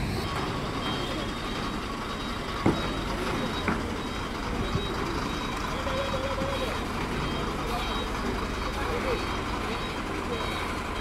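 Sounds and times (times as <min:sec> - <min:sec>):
truck diesel engine running: 0:00.0 - 0:11.0.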